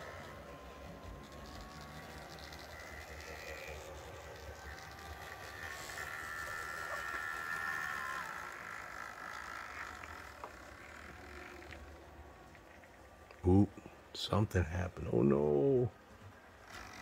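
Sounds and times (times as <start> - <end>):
model train motor whine: 0.0 - 13.1, 16.5 - 17.0.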